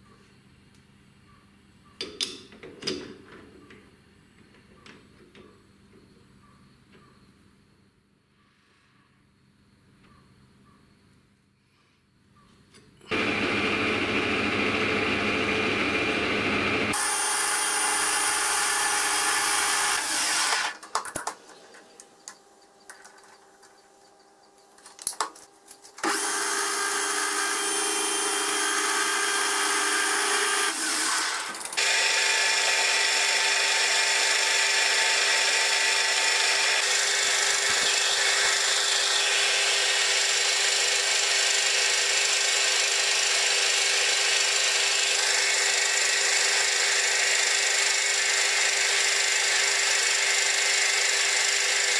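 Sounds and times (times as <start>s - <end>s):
metal lathe running: 13.1s - 20.7s, 26.0s - 51.9s
milling machine drilling metal: 13.1s - 20.8s, 26.0s - 51.9s.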